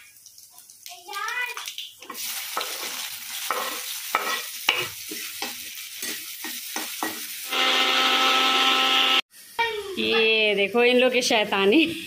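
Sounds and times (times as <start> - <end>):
food sizzling in a pan: 0.0 - 11.6
electric motor humming: 7.5 - 9.2.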